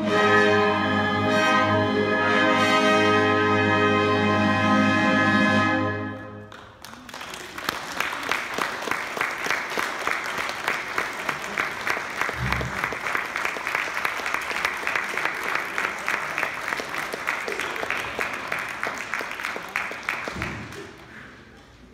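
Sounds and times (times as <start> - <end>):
orchestra chord with brass: 0.0 - 6.5
audience applause: 6.5 - 21.6.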